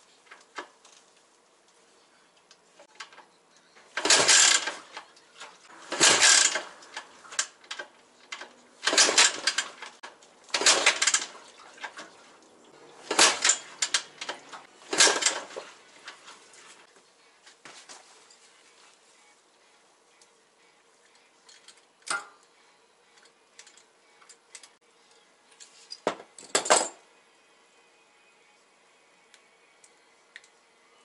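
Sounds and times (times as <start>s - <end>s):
motorcycle engine turning over: 3.9s - 5.1s, 5.7s - 12.0s, 13.0s - 15.8s.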